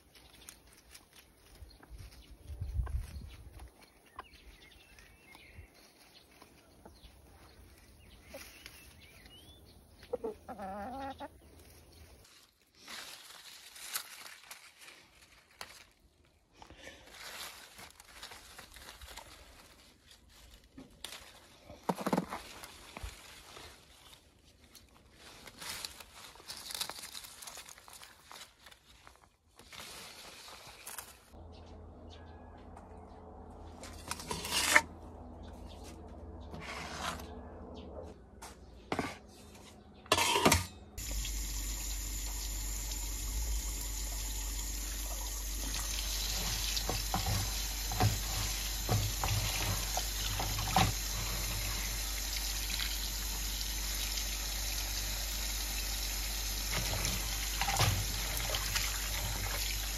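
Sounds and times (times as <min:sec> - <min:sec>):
leaves rustling: 0:00.0 - 0:04.0, 0:11.4 - 0:31.4, 0:41.0 - 0:59.9
chickens clucking: 0:09.8 - 0:11.8.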